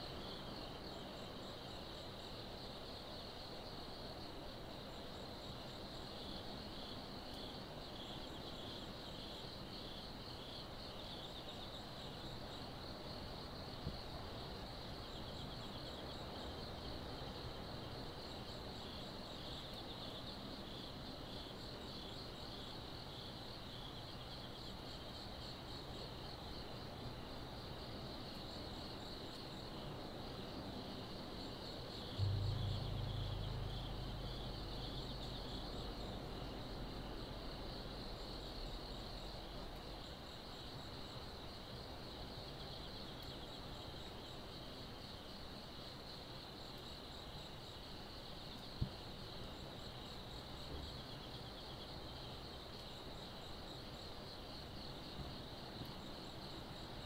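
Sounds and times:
high insect trills: 0.0s - 57.0s
night insects chirping: 0.0s - 57.0s
faint low rumble: 32.1s - 38.5s.

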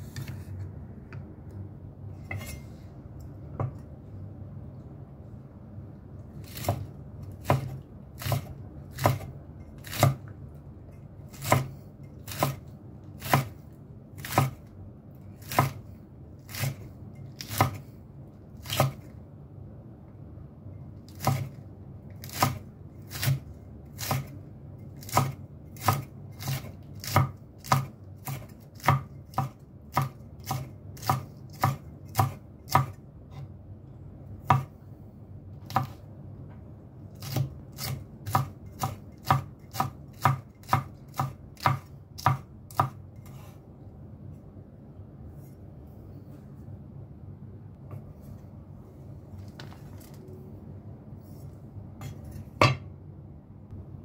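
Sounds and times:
knife chopping chilies: 6.4s - 10.4s, 11.2s - 13.6s, 14.2s - 14.7s, 15.3s - 17.9s, 18.6s - 19.1s, 21.1s - 33.5s, 34.4s - 34.7s, 35.6s - 36.0s, 37.1s - 43.6s.

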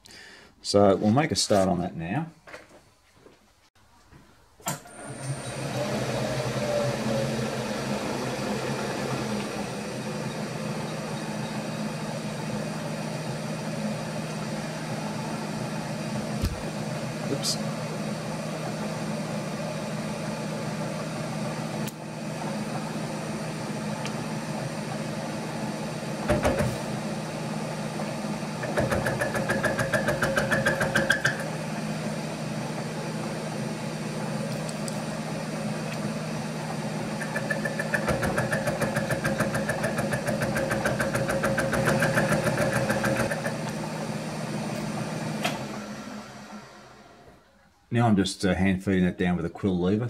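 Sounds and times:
milling machine hum: 4.7s - 47.8s.

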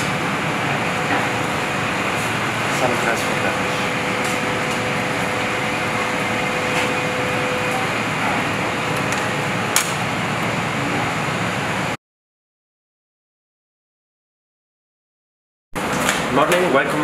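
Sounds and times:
faint hum: 0.0s - 12.0s
kitchen ventilation rushing: 0.0s - 12.0s, 15.8s - 17.0s.

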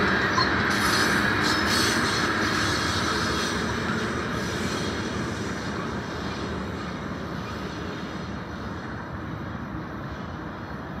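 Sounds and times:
train wheels rolling on rails: 0.0s - 11.0s.

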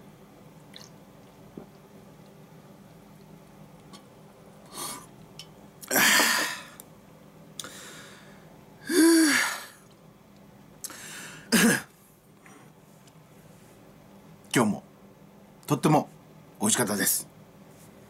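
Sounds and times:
man exhaling hard: 5.9s - 6.8s, 7.6s - 9.7s.

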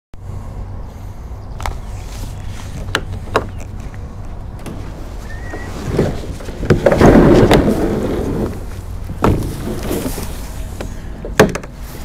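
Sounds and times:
kayak scraping over ground: 4.7s - 11.0s
kayak hull knocks: 9.2s - 9.8s.

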